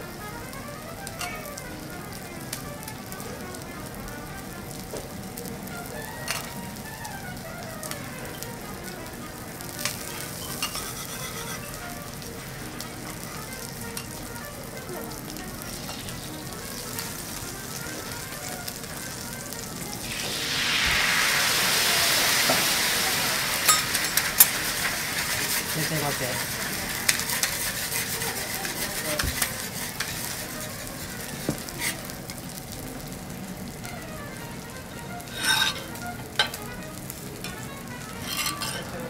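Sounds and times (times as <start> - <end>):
butter sizzling on a griddle: 0.0 - 39.0
loud hissing sizzle: 0.0 - 39.0.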